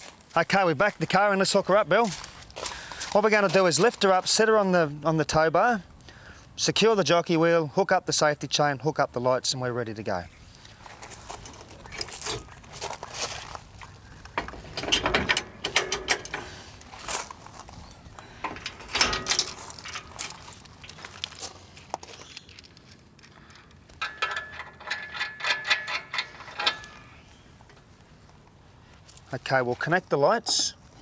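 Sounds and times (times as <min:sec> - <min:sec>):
rattling clicks: 0:14.2 - 0:16.6, 0:18.4 - 0:21.0, 0:22.2 - 0:27.9
trailer coupling metal clanks: 0:14.2 - 0:17.1, 0:18.3 - 0:20.6, 0:24.0 - 0:27.9.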